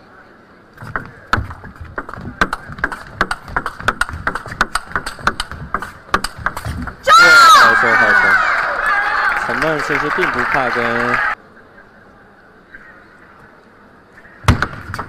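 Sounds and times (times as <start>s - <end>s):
table tennis ball hits: 0.8s - 7.0s.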